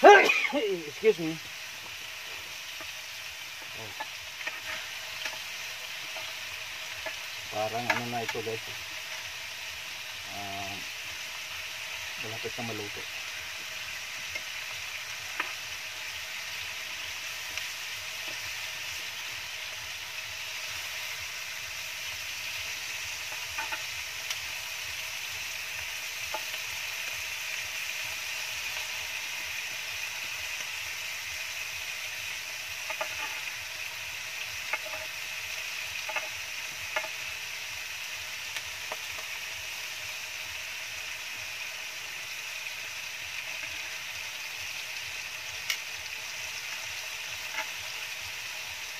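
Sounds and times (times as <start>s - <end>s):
chicken sizzling in a pan: 0.0s - 48.9s
metal tongs clicking against pan: 34.7s - 35.1s, 36.0s - 37.2s, 45.6s - 45.9s, 47.5s - 47.8s.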